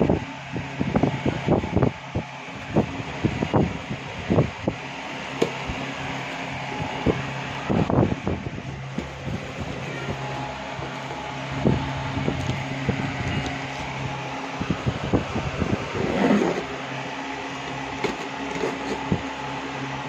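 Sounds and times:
electric fan running: 0:00.0 - 0:20.0
cardboard box rustling and scraping: 0:15.9 - 0:16.8, 0:18.0 - 0:19.2.

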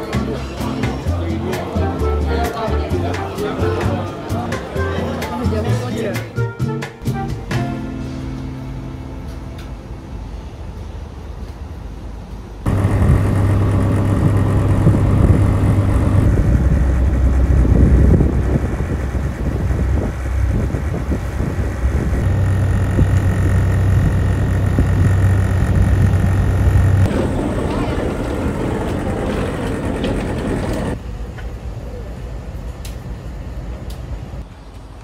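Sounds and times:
ferry engine humming: 0:07.1 - 0:35.0.

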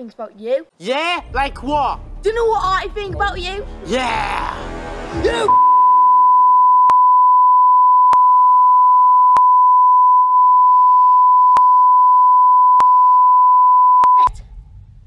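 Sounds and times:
censor bleep: 0:05.5 - 0:14.3.

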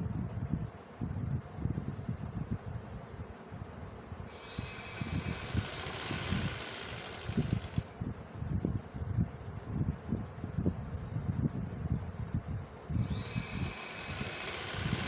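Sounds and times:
sewing machine motor whine: 0:04.3 - 0:07.9, 0:13.0 - 0:15.0.

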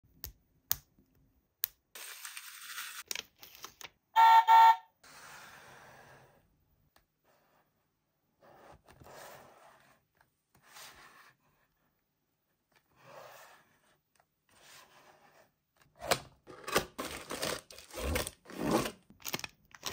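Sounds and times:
loud horn-like beep: 0:04.2 - 0:04.9.

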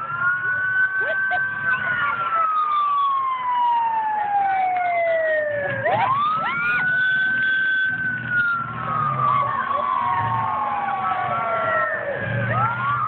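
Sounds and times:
police siren wailing: 0:00.0 - 0:13.0
car engine: 0:04.2 - 0:13.0.

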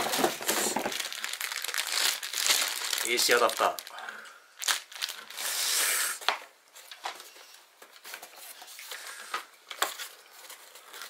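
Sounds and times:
cardboard packaging rustling: 0:00.0 - 0:04.0, 0:04.6 - 0:05.4, 0:06.8 - 0:11.0
plastic bag crinkling: 0:00.0 - 0:05.5.

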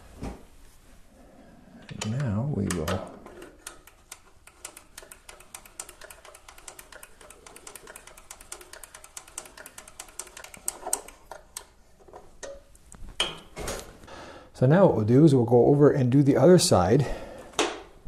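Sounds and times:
hex key clicking: 0:01.9 - 0:11.7.

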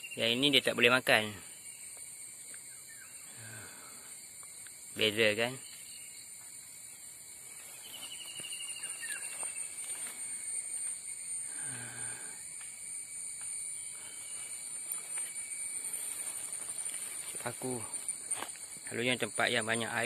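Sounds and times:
plants rustling: 0:07.5 - 0:11.0, 0:14.0 - 0:18.8.

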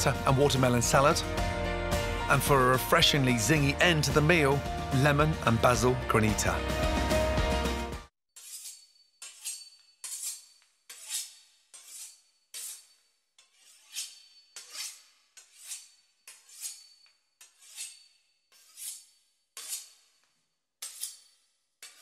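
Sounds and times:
knife sawing through pastry crust: 0:08.4 - 0:22.0.

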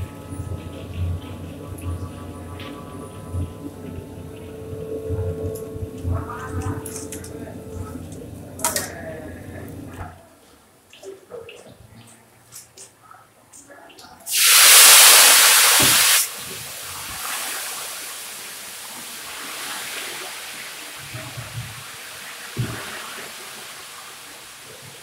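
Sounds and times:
food sizzling in oil: 0:14.3 - 0:16.3.

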